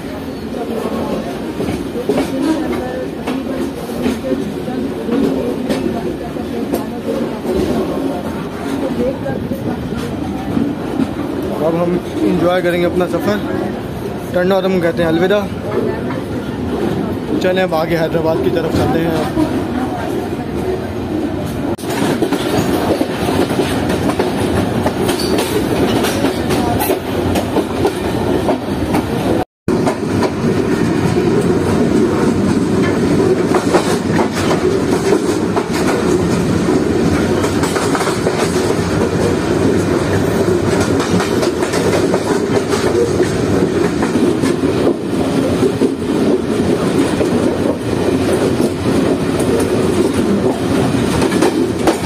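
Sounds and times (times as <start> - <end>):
train rolling rumble: 0.0 - 52.0
wheels clacking over rail joints: 21.7 - 52.0.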